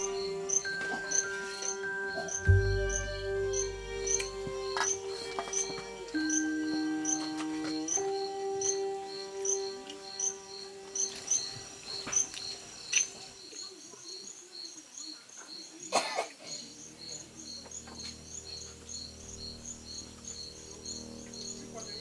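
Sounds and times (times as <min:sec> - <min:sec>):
held musical note: 0:00.0 - 0:11.0
crickets chirping: 0:00.0 - 0:22.0.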